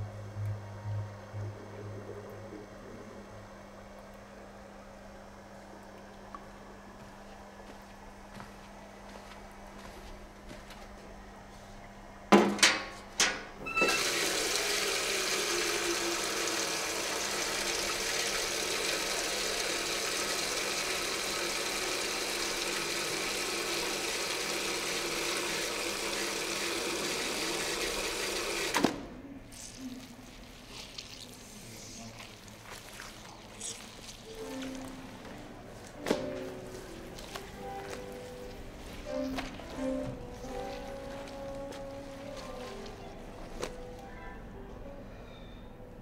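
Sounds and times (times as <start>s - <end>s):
tap water running into bucket: 13.7s - 31.6s.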